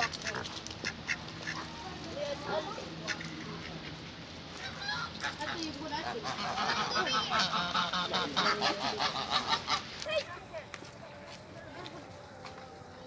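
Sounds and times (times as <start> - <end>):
geese honking: 0.0 - 4.0, 4.6 - 10.3.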